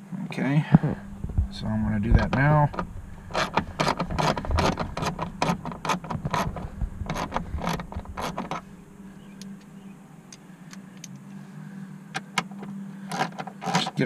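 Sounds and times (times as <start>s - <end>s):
socket ratchet clicking: 2.8s - 8.6s.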